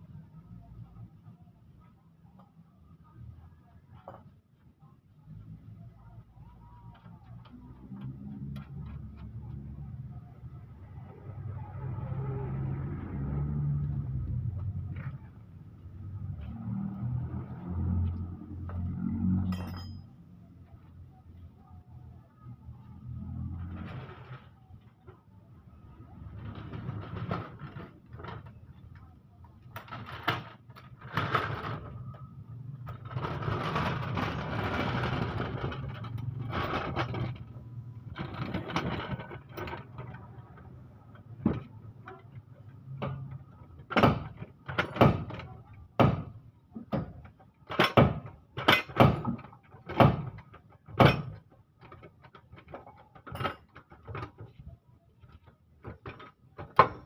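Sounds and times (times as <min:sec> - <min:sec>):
floor jack scraping on concrete: 0:26.2 - 0:28.6, 0:29.8 - 0:40.4.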